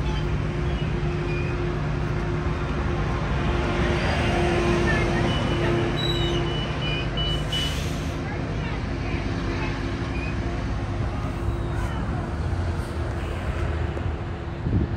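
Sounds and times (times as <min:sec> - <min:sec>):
diesel locomotive humming: 0:00.0 - 0:14.9
train cars rumbling: 0:00.0 - 0:14.9.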